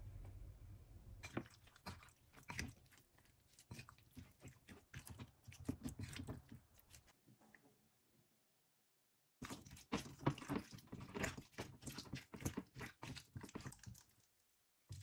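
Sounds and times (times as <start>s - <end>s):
spoon stirring wet chicken: 1.2s - 7.2s, 9.4s - 15.0s.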